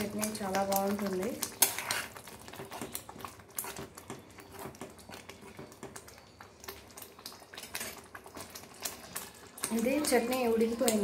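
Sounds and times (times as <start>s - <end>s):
chutney bubbling in oil: 0.0s - 11.0s
steel spoon scraping pan: 1.5s - 2.8s.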